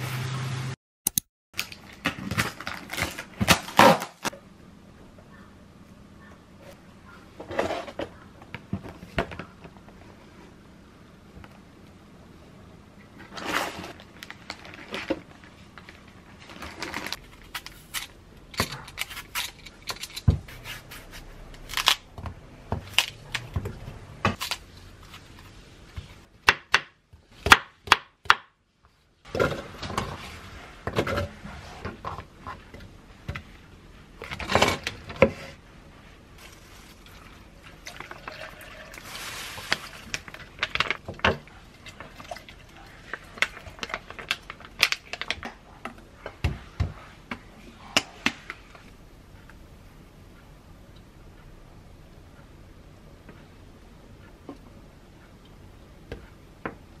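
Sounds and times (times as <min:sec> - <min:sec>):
plastic food packs handled: 0:01.6 - 0:04.3, 0:13.2 - 0:20.4
liquid pouring into plastic jug: 0:37.2 - 0:39.4.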